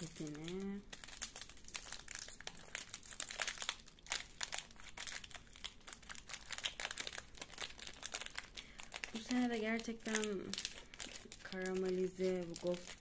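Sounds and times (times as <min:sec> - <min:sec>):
plastic wrapper crinkling: 0:00.0 - 0:13.0.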